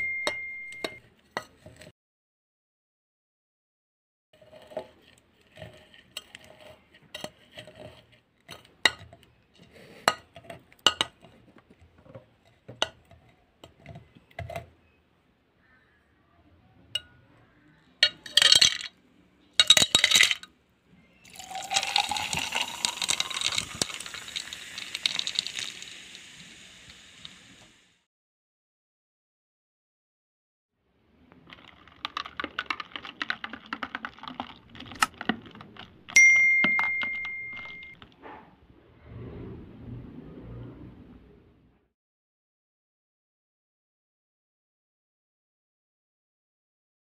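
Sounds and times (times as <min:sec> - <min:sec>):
ice clattering into pitcher: 0:18.2 - 0:18.9, 0:19.6 - 0:20.5, 0:21.3 - 0:26.2, 0:31.4 - 0:37.8
fizzing pour of soda: 0:21.3 - 0:28.0.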